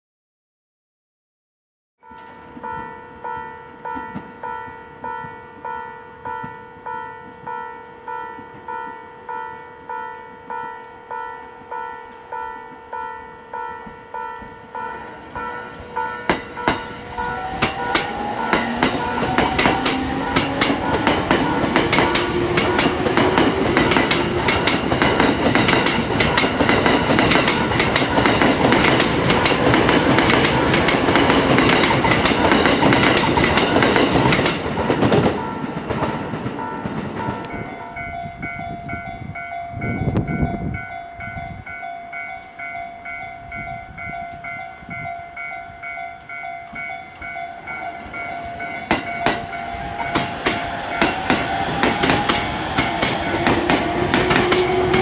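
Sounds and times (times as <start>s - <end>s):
level crossing alarm ringing: 2.0s - 55.0s
second crossing alarm ringing: 13.6s - 55.0s
train wheels clattering over joints: 16.3s - 37.7s, 48.0s - 55.0s.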